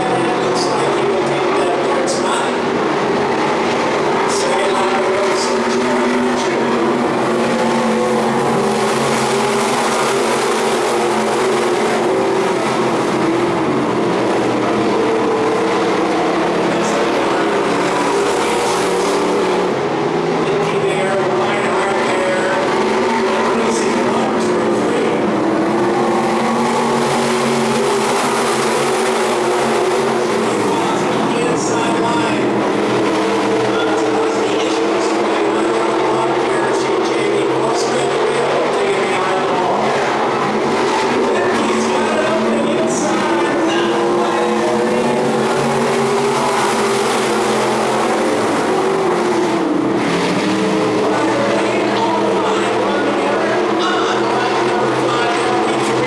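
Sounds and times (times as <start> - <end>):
racing car engines droning: 0.0 - 56.0.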